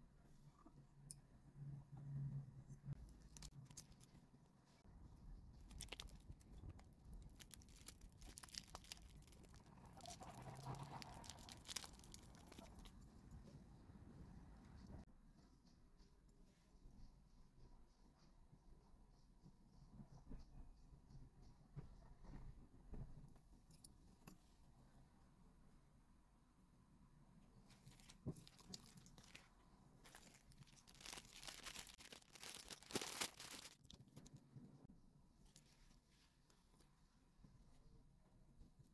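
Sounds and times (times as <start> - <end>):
plastic packaging crinkling: 5.6 - 12.9, 27.7 - 34.0.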